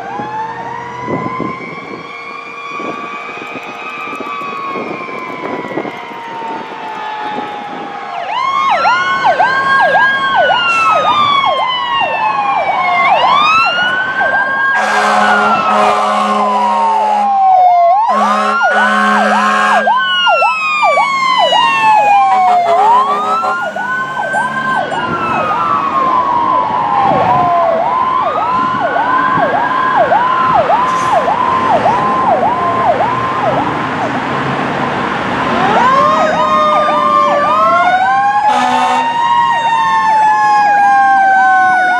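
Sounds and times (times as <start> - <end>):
siren yelping: 0.0 - 34.2, 35.5 - 41.9
siren wailing: 0.0 - 41.9
long low horn blasts: 14.8 - 17.4, 18.1 - 20.0, 21.9 - 25.6, 38.4 - 39.2.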